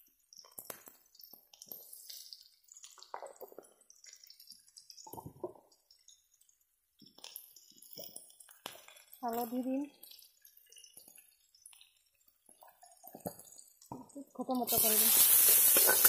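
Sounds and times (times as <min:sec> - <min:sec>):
potatoes frying in oil: 0:00.0 - 0:16.0.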